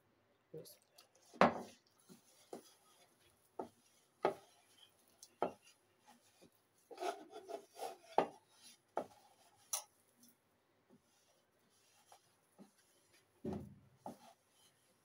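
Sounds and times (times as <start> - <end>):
dry dough crumbs scraping: 1.2 - 15.0.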